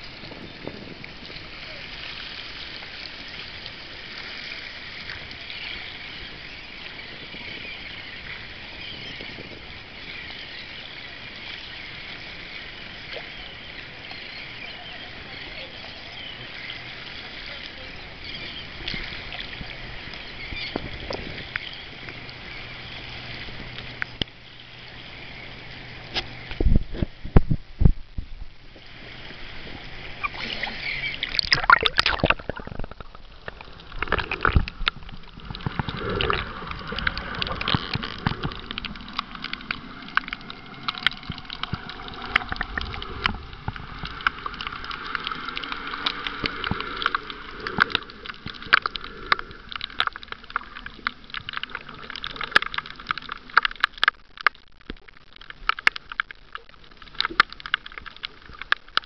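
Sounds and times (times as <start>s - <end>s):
muffled underwater noise: 0.0s - 59.0s
underwater clicks and crackles: 0.0s - 59.0s
seawater sloshing: 28.9s - 59.0s
splashy rush of water: 28.9s - 59.0s.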